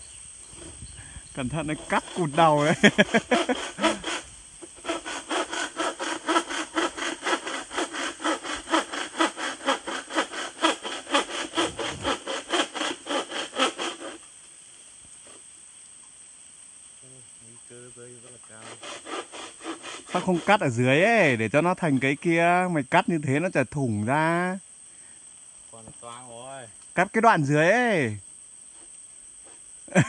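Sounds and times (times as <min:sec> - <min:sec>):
hand saw cutting bamboo: 0:01.4 - 0:14.2, 0:18.5 - 0:22.0.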